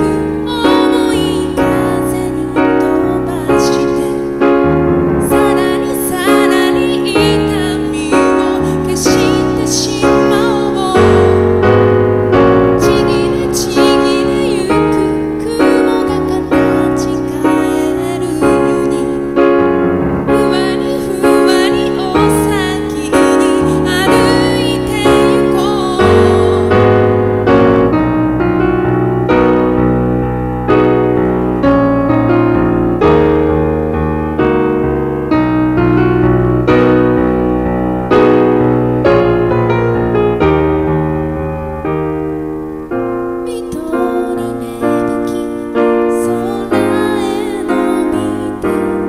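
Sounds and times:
woman singing: 0:00.0 - 0:04.4, 0:05.2 - 0:11.9, 0:12.7 - 0:19.7, 0:20.3 - 0:27.2, 0:43.4 - 0:49.0
digital piano chords: 0:00.0 - 0:49.0.

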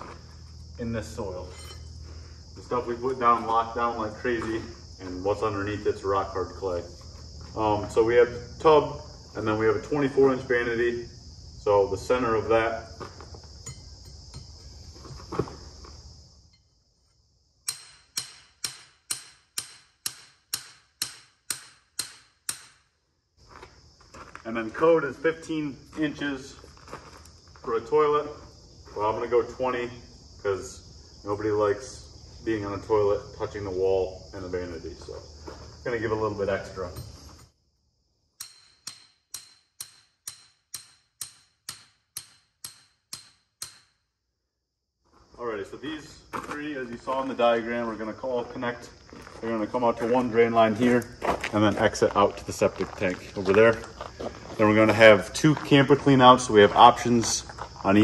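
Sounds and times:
hammer striking a stake: 0:17.6 - 0:22.9, 0:38.4 - 0:44.1.

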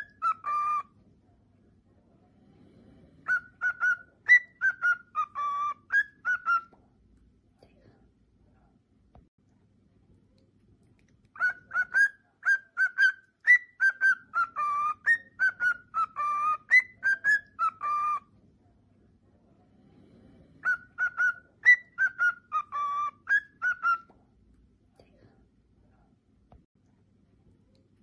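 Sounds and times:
cockatiel whistling song: 0:00.0 - 0:00.9, 0:03.2 - 0:06.8, 0:11.4 - 0:18.3, 0:20.6 - 0:24.1.

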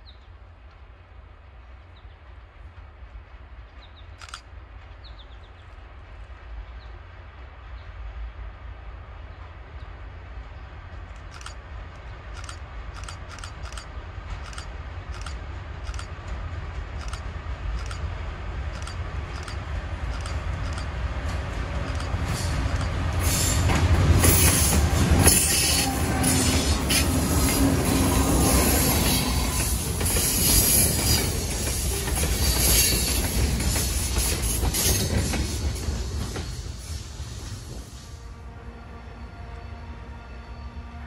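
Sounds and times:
diesel locomotive engine rumble: 0:00.0 - 0:41.0
wheels clicking on rails: 0:11.0 - 0:38.0.

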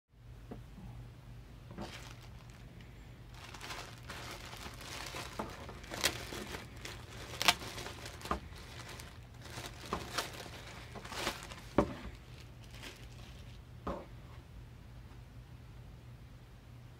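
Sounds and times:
plastic bag crinkling: 0:01.7 - 0:13.7
sharp crackling snaps: 0:03.4 - 0:11.6.

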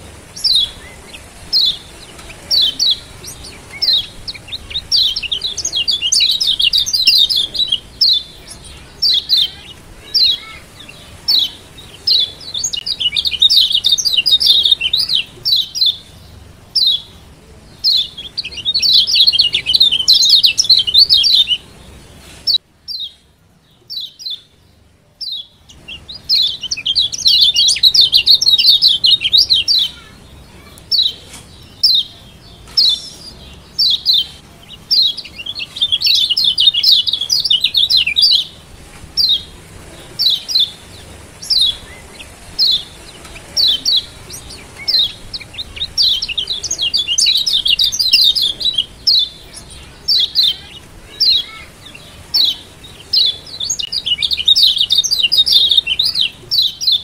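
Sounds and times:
bird sharp high chirps: 0:00.2 - 0:16.2, 0:25.2 - 0:57.0.

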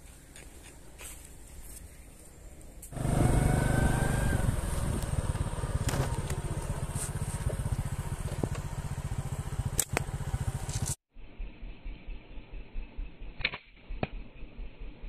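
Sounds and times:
motorcycle engine putter: 0:04.8 - 0:11.0.

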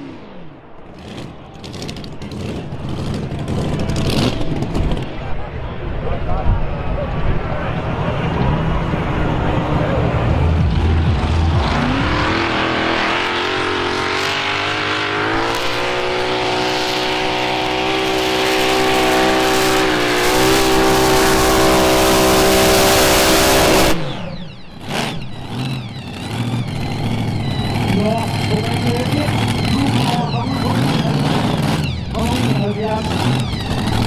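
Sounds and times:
supercharged tractor engine full throttle: 0:07.7 - 0:34.0.

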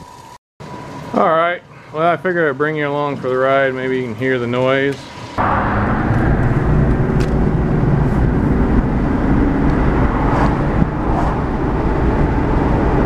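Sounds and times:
engine tyre and wind rumble: 0:05.4 - 0:13.0.

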